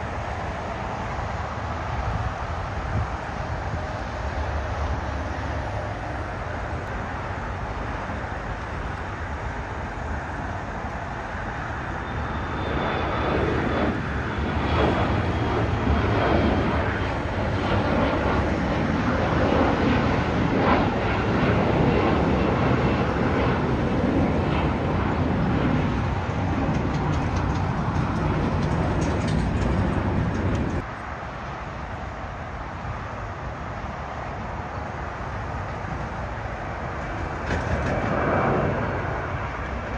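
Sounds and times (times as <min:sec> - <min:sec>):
high jet whine: 0:00.0 - 0:39.9
jet engines roaring: 0:00.0 - 0:39.9.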